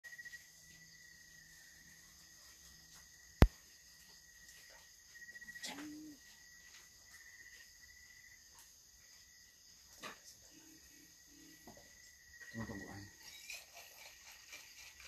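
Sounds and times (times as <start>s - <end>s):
night insects chirring: 0.0s - 15.0s.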